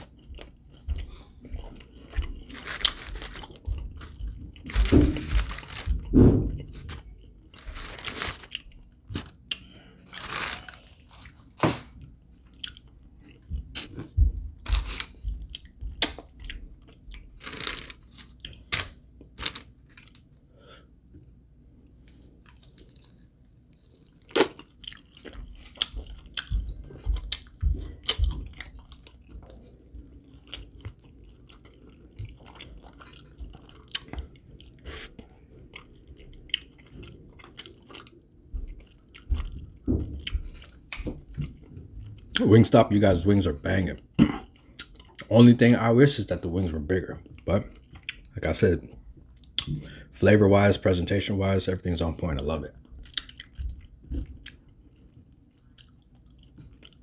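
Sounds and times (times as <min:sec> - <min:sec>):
crunching chicken wings: 0:02.3 - 0:12.0, 0:14.7 - 0:20.3, 0:22.1 - 0:35.1.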